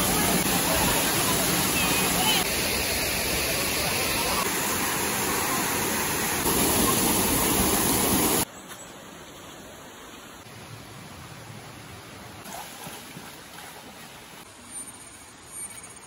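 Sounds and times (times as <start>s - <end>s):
waterfall rushing: 0.0s - 8.4s
small rocky stream: 0.0s - 16.0s.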